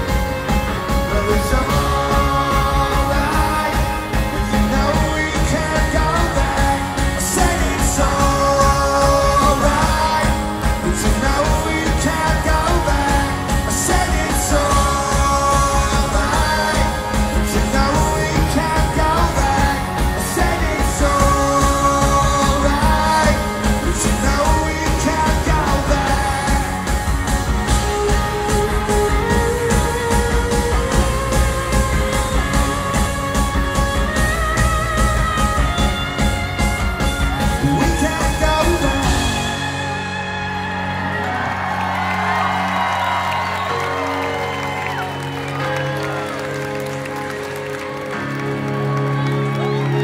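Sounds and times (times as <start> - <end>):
man singing: 0.0 - 34.2, 37.3 - 40.9
electric guitars and drums: 0.0 - 50.0
backing vocals: 0.8 - 33.2.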